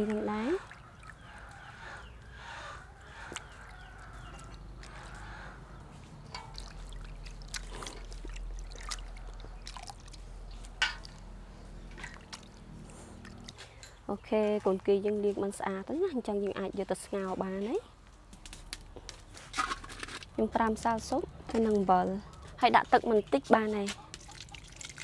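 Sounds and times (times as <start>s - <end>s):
water sloshing in a steel bowl: 0.0s - 1.8s, 3.0s - 15.7s, 23.5s - 25.0s.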